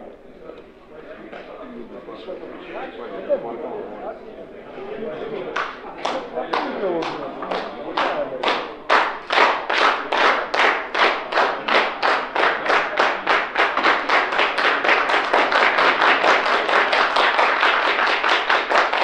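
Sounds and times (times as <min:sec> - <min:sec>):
audience clapping in unison: 0:05.5 - 0:19.0.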